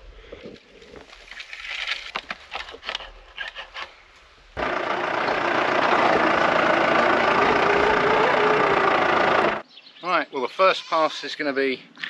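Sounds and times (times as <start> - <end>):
tractor engine running: 4.6 - 9.6.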